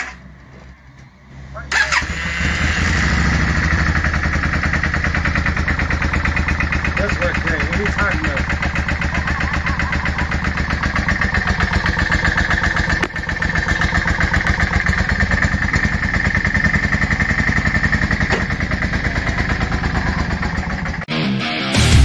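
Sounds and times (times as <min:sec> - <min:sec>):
motorcycle engine idling: 0:01.8 - 0:21.1.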